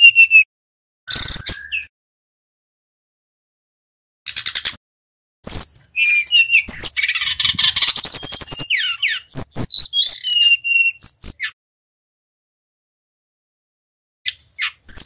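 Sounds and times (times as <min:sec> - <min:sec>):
bird singing whistles and trills: 0:00.0 - 0:00.5, 0:01.1 - 0:01.9, 0:05.4 - 0:11.6, 0:14.3 - 0:15.0.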